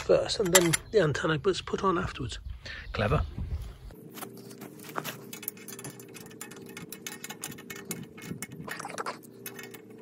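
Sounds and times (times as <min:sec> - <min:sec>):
steady low hum: 0:00.0 - 0:10.0
metal bracket clinking on pipe: 0:00.4 - 0:01.0.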